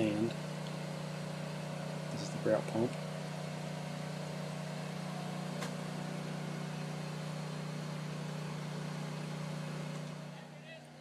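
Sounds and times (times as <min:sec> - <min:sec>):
pump engine humming: 0:00.0 - 0:11.0.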